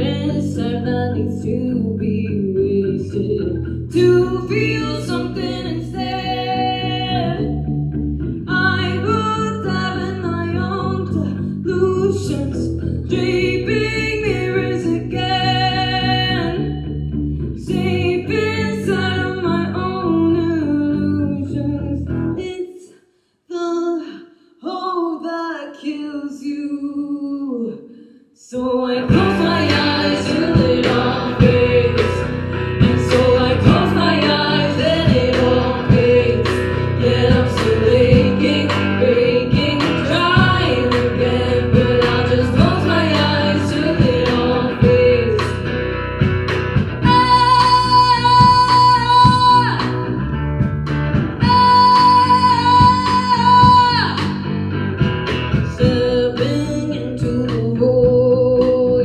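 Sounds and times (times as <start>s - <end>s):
woman singing: 0.0s - 7.6s, 8.5s - 16.9s, 17.6s - 22.9s, 23.5s - 45.7s, 47.0s - 50.2s, 51.3s - 54.5s, 55.7s - 59.0s
live rock band: 29.0s - 59.0s.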